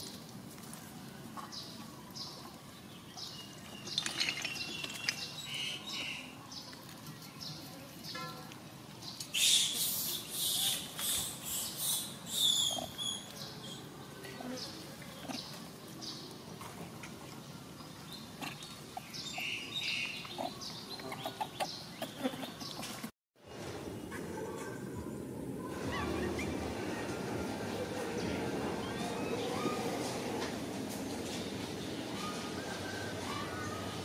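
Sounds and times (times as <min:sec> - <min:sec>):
monkey squeaks and calls: 0:09.3 - 0:13.3, 0:18.4 - 0:23.0.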